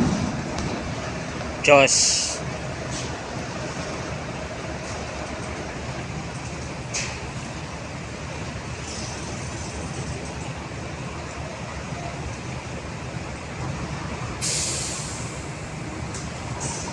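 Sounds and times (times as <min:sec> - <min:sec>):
truck diesel engine running: 0:00.0 - 0:16.9
air brake hiss: 0:02.0 - 0:02.4, 0:14.4 - 0:15.6.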